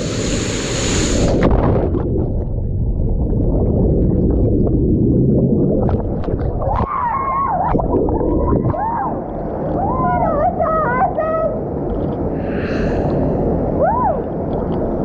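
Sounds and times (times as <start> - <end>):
churning water and bubbles: 0.0 - 15.0
woman whooping: 6.8 - 7.8, 8.7 - 9.2, 13.8 - 14.3.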